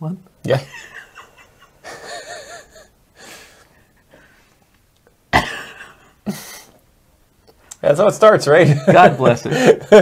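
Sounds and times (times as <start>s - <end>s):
men laughing: 0.5s - 3.9s, 5.4s - 6.8s, 8.6s - 10.0s.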